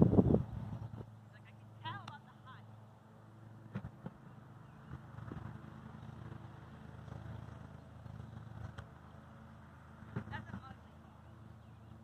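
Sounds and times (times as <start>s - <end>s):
car passing: 0.0s - 12.0s.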